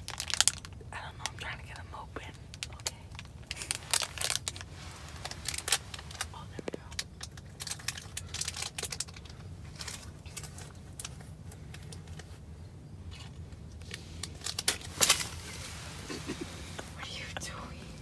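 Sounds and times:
low steady rumble: 0.0s - 18.0s
handling clicks and rustles: 2.4s - 12.4s, 13.1s - 17.0s.

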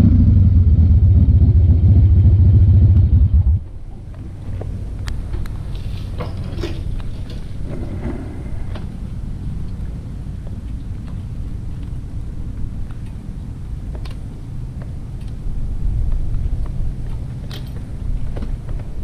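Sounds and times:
motorcycle engine idling: 0.0s - 3.7s.

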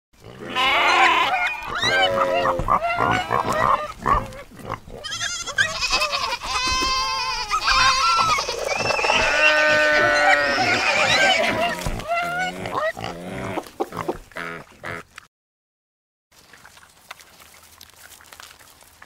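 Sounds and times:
animal calls: 0.4s - 15.0s.

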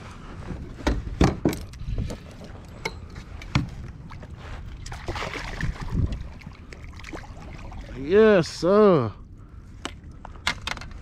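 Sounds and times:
water splashing: 3.9s - 8.6s.

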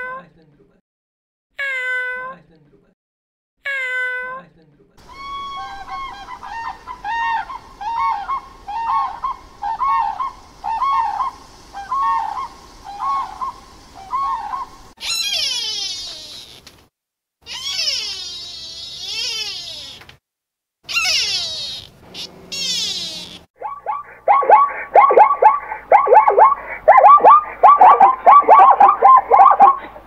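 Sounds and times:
long wavering animal calls: 5.0s - 16.6s, 17.5s - 20.0s, 20.9s - 30.0s
short pitched animal calls: 5.0s - 16.7s, 17.4s - 20.0s, 20.8s - 29.9s.

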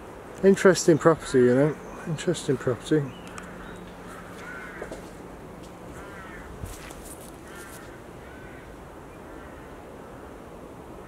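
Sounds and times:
crow cawing: 3.2s - 5.2s, 5.9s - 10.4s
footsteps through undergrowth: 3.4s - 8.0s.

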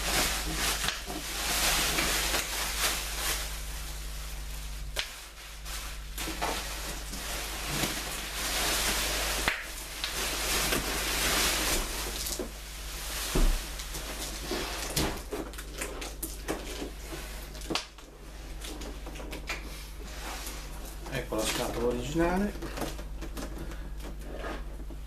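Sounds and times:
bubble wrap rustling and crinkling: 0.0s - 25.0s.

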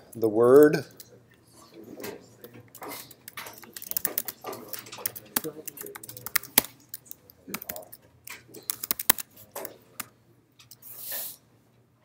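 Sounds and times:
keyboard key clicks: 3.6s - 8.0s, 8.7s - 10.1s.

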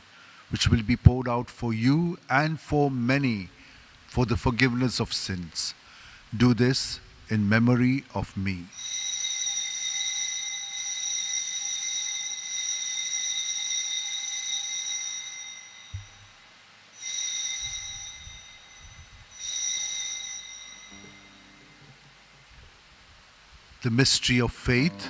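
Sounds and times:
small bell ringing: 8.7s - 22.0s.

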